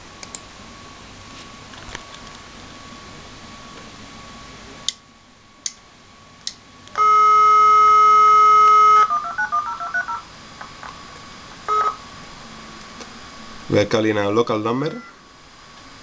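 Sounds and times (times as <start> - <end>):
steady dial tone: 7.0 - 10.2, 11.7 - 12.0, 14.8 - 15.2
touch-tone digit beeps: 9.0 - 10.2, 14.9 - 15.2.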